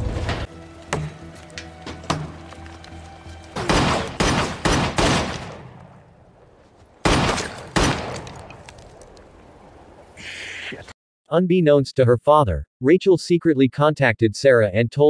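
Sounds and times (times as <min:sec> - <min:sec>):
background music: 0:00.0 - 0:05.0
handgun shots with echo: 0:03.6 - 0:05.8.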